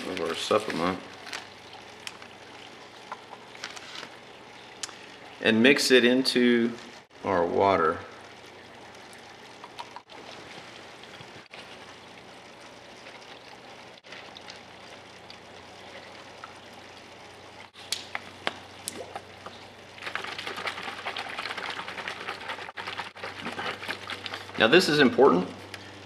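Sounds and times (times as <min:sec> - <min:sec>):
water sloshing in shaken bottle: 0:00.0 - 0:04.3, 0:18.8 - 0:25.2.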